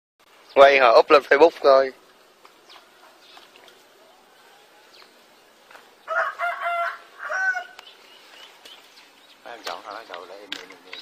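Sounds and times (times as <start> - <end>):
rooster crowing: 6.0 - 7.8.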